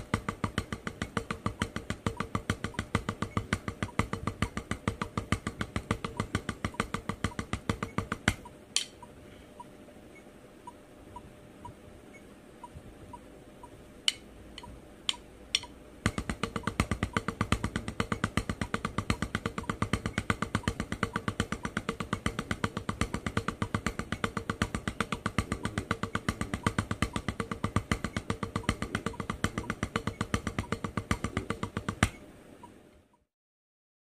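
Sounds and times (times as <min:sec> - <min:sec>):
drumsticks on practice pad: 0:00.0 - 0:09.1, 0:14.0 - 0:32.2
count-in clicks: 0:10.2 - 0:17.4.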